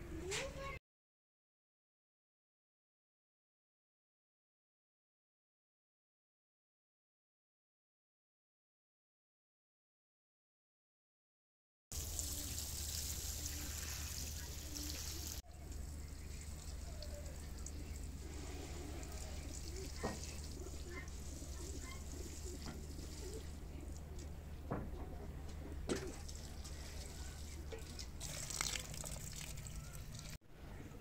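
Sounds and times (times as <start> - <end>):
water pouring from watering can: 11.9 - 24.3, 25.9 - 30.4.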